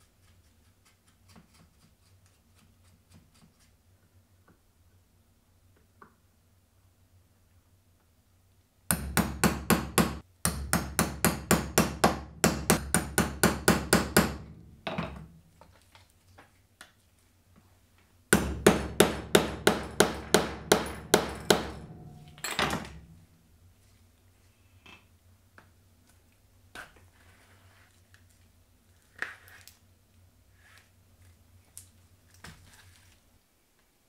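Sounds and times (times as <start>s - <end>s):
chisel hammered through leather: 8.9s - 15.1s, 18.3s - 22.8s.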